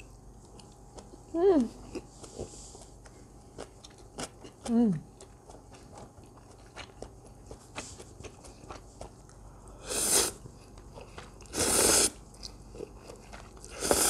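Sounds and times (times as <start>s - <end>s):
quiet chewing with mouth clicks: 0.0s - 9.8s, 10.4s - 14.0s
slurping noodles: 9.8s - 10.4s, 11.4s - 12.2s, 13.7s - 14.0s.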